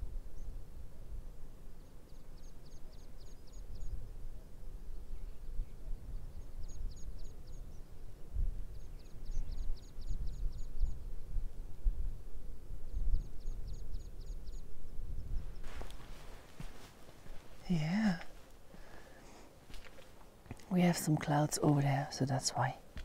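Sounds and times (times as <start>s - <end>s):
songbird singing: 0.0s - 23.0s
wind on microphone: 3.6s - 21.9s.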